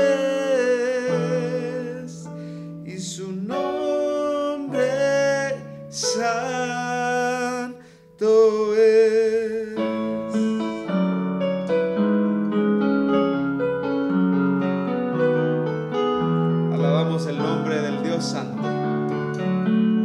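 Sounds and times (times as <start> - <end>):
man singing: 0.0 - 11.2, 16.7 - 18.7
piano accompaniment: 0.0 - 20.0.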